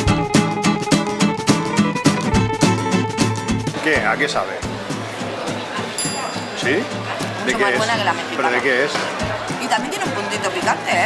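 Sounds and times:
music with plucked notes and beat: 0.0s - 3.8s.

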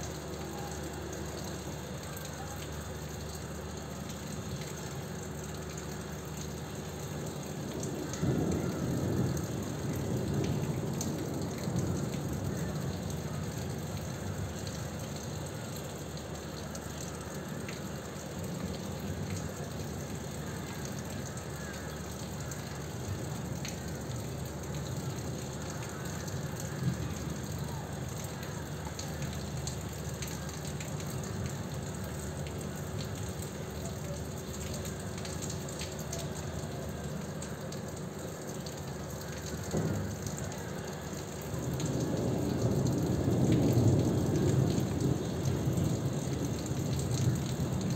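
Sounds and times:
steady rain: 0.0s - 47.9s
low thunder rumble: 7.7s - 14.6s, 41.5s - 47.9s.

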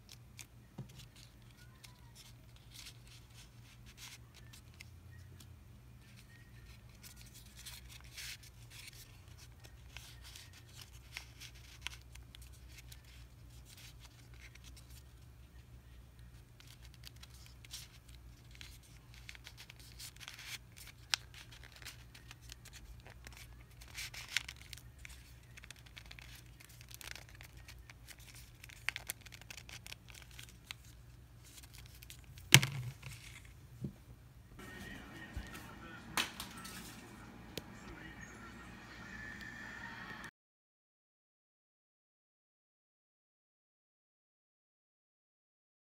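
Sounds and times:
paper crinkling and rustling: 0.0s - 33.6s, 34.6s - 38.1s
low steady hum: 30.5s - 40.3s.

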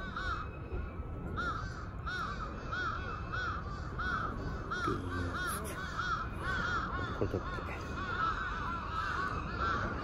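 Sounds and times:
crows cawing: 0.0s - 10.0s.

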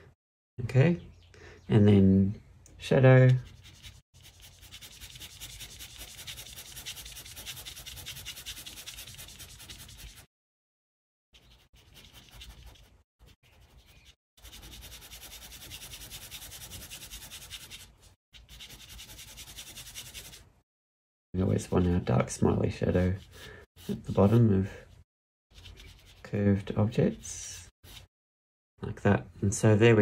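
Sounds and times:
drawing tool scratching on paper: 3.5s - 10.3s, 11.4s - 20.4s.

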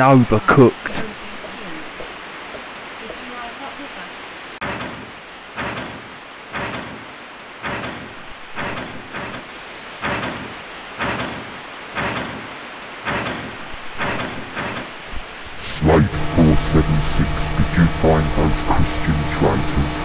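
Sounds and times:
steady background hiss: 0.0s - 20.0s
hissing mechanical stomps: 4.6s - 15.3s.

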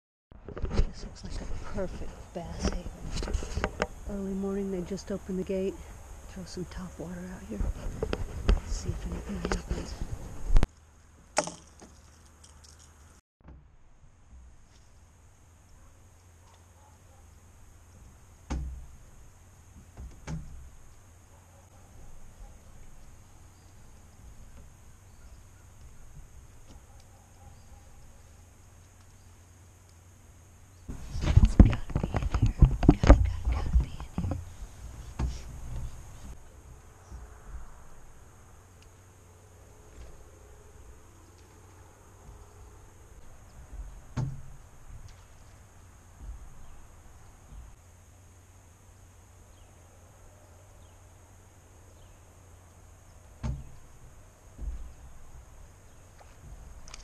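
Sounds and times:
sharp knocks: 18.4s - 19.0s, 43.7s - 45.2s, 53.4s - 53.8s
soft low thumps: 30.9s - 36.4s, 46.1s - 47.8s, 53.3s - 55.8s.

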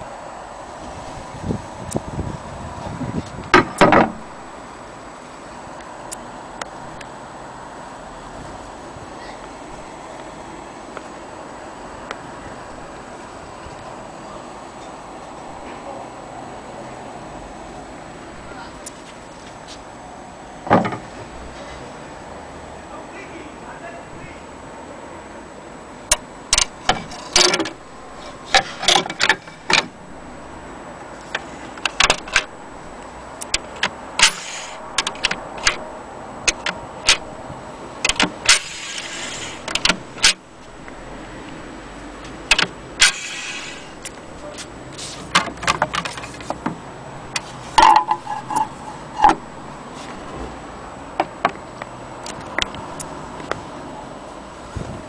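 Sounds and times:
metallic clicks and knocks: 26.1s - 30.0s, 31.3s - 32.5s, 33.4s - 35.8s, 36.4s - 37.3s, 38.0s - 40.4s, 42.5s - 44.2s, 45.3s - 49.5s
brief rubbing sounds: 43.1s - 45.3s.

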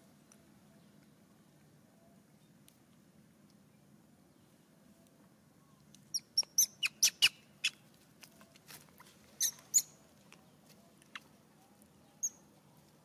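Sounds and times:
high-pitched monkey squeaks: 6.1s - 7.8s, 9.4s - 10.0s, 12.2s - 12.4s.

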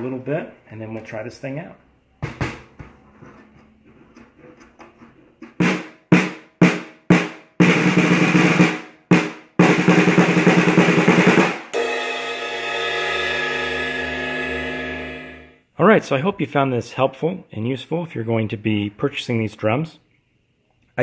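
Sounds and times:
snare drum strokes and rolls: 5.6s - 12.4s
cymbal crash: 11.4s - 15.6s.

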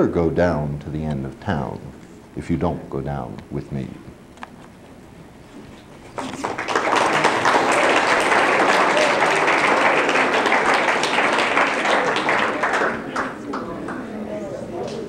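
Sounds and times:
audience applauding: 6.1s - 14.1s.

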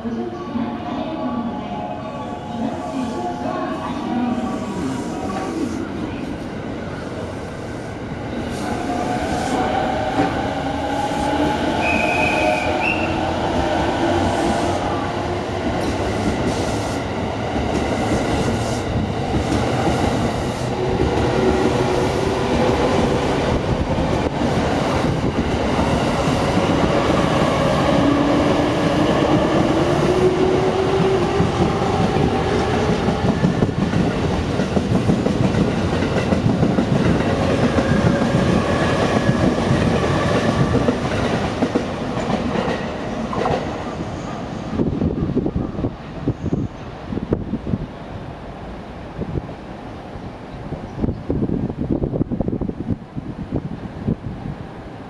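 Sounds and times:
electric train passing: 0.0s - 50.3s.

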